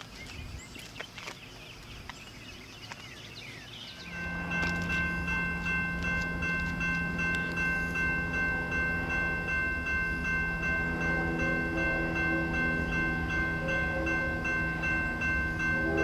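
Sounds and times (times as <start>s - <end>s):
railroad crossing bell ringing: 4.0s - 16.0s
steady low hum: 4.0s - 16.0s.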